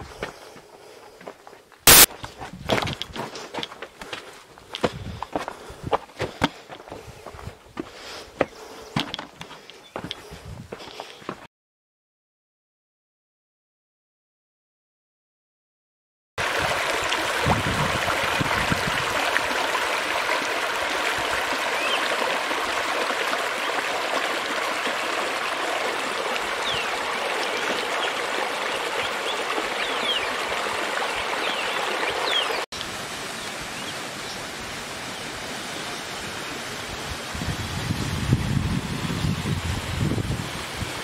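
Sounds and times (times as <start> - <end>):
stream rushing over rocks: 1.9 - 2.1, 16.4 - 41.0.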